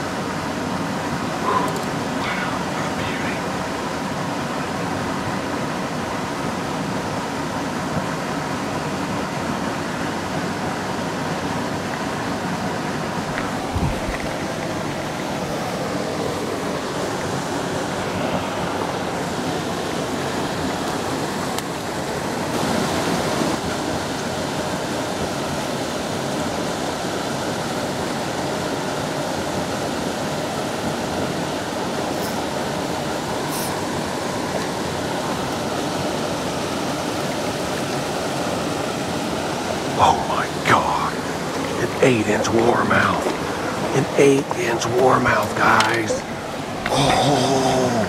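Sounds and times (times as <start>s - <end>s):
water rushing through spillway: 0.0s - 48.0s.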